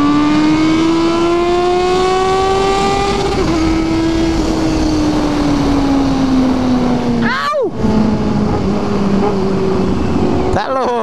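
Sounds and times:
motorcycle engine accelerating: 0.0s - 11.0s
wind rushing over microphone: 0.0s - 11.0s.

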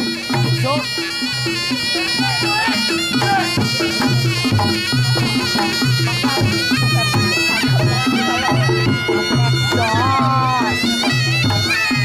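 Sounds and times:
drums and gongs pattern: 0.0s - 12.0s
shawm playing nasal melody: 0.0s - 12.0s.

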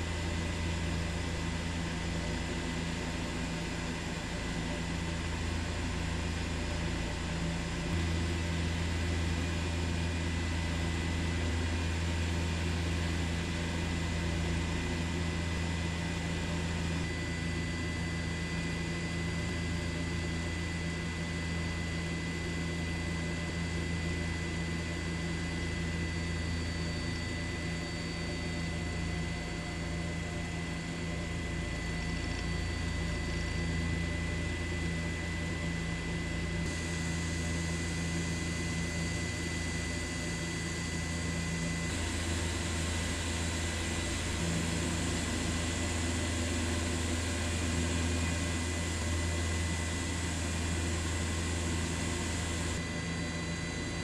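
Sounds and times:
helicopter cabin drone: 0.0s - 54.0s
high whine: 24.5s - 54.0s.

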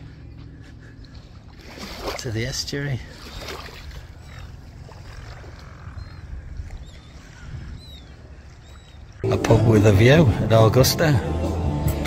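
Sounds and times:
faint bird chirps: 3.2s - 9.2s
wind rumble on microphone: 5.0s - 8.2s.

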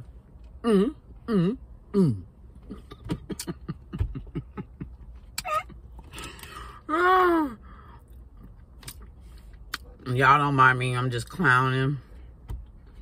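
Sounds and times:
woman making playful vocal sounds: 5.4s - 5.8s.

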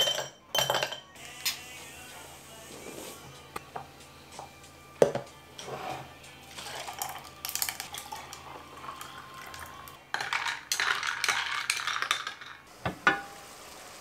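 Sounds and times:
liquid poured over ice: 6.5s - 12.2s
spoon stirring ice in a glass: 6.5s - 12.6s.

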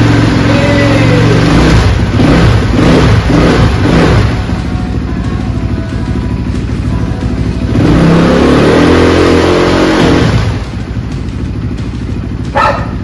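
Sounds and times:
dirt bike engine revving: 0.0s - 4.9s, 7.0s - 13.0s.

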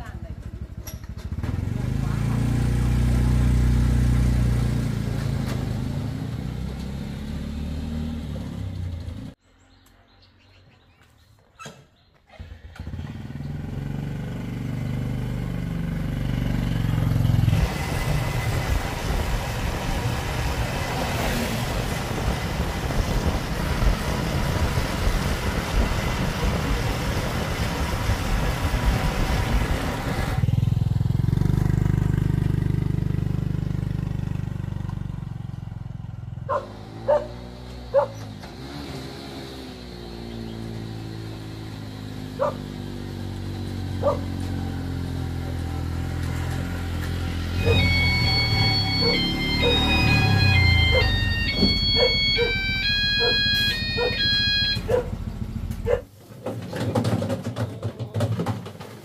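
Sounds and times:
small motorcycle engine idling: 0.0s - 4.8s, 12.3s - 38.3s, 41.7s - 56.0s
motorbike riding up: 0.0s - 9.8s, 11.6s - 59.0s
rushing wind and road noise: 17.4s - 31.5s.

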